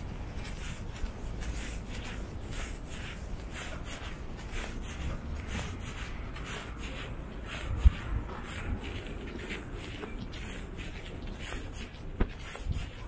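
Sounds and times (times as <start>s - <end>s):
footsteps on stone paving: 0.0s - 13.0s
steady low rumble: 0.0s - 13.0s.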